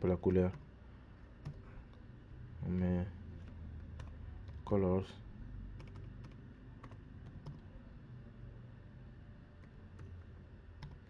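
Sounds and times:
low steady hum: 0.0s - 11.0s
computer keyboard keystrokes: 1.4s - 2.0s, 5.8s - 7.7s, 10.8s - 11.0s.

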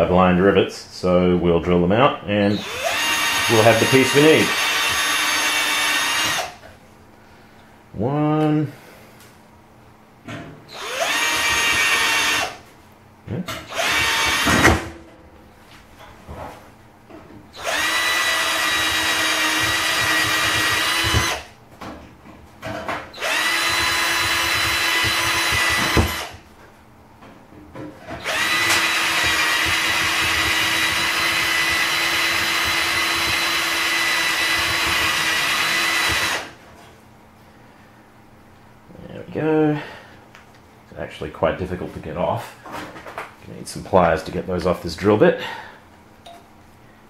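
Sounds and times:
electric drill drilling into metal: 2.6s - 6.5s, 10.7s - 12.6s, 13.7s - 14.8s, 17.6s - 21.5s, 23.2s - 26.4s, 28.2s - 36.5s.

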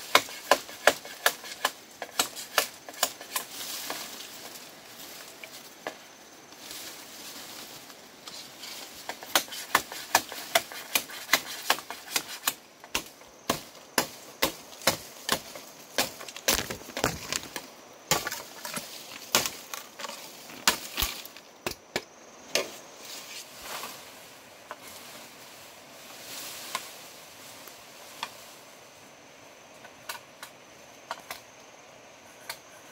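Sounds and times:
machete chopping bamboo: 0.0s - 3.5s, 9.1s - 19.8s, 20.6s - 22.7s.

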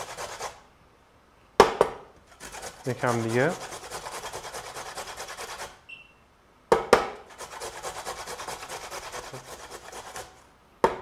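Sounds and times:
carrot grating on box grater: 0.0s - 0.6s, 2.2s - 5.8s, 7.2s - 10.4s.

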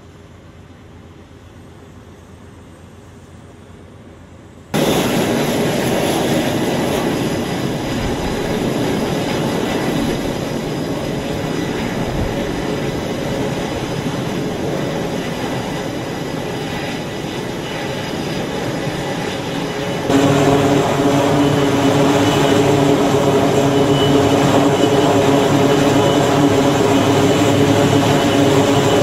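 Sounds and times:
jet engines roaring: 4.7s - 29.0s
faint high whine: 19.7s - 29.0s.

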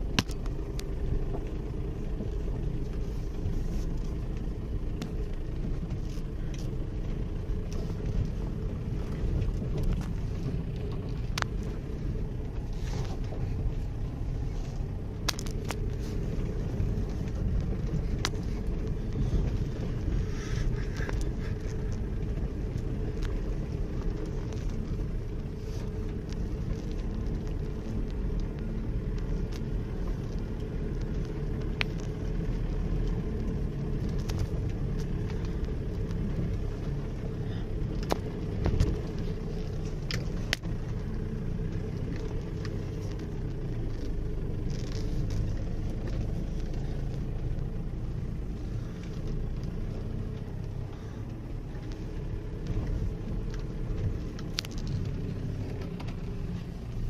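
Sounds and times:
car engine low rumble: 0.0s - 57.0s
knocks and rattles over ruts: 0.0s - 57.0s.

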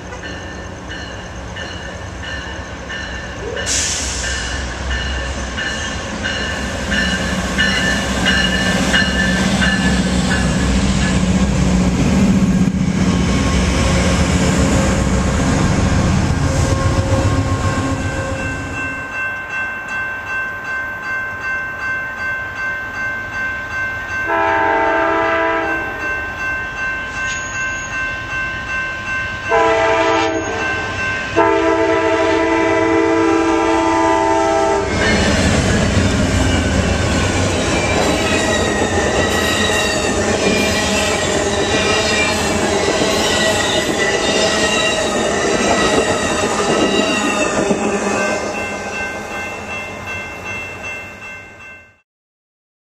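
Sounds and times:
crossing bell ringing: 0.0s - 11.6s, 16.7s - 52.0s
train rumble: 0.0s - 19.2s, 24.2s - 50.6s
train horn blasts: 24.3s - 26.1s, 29.5s - 35.2s.

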